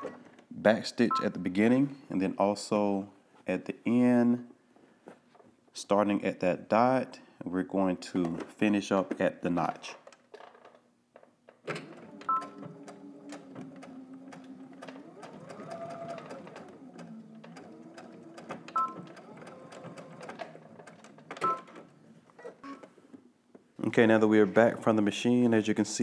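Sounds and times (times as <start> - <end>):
sewing machine stitching: 11.7 - 22.9.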